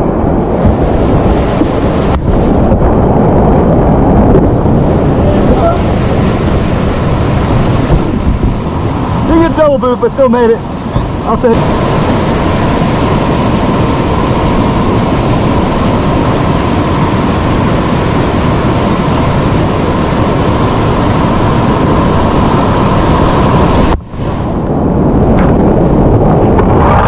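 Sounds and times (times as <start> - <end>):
dull water rush: 0.0 - 27.0
whitewater rapids rushing: 4.7 - 24.6.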